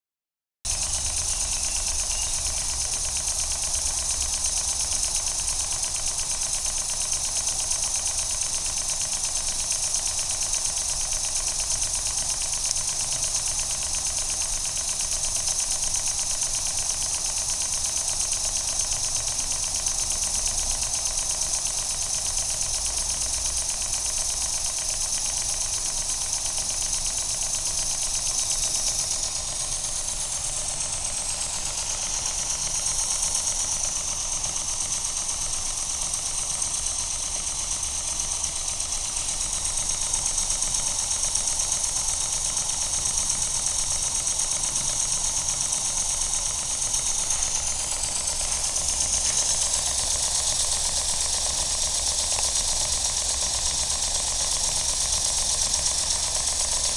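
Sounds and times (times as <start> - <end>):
steam engine exhaust ticking: 0.7 - 56.9
steady steam hiss: 4.4 - 56.9.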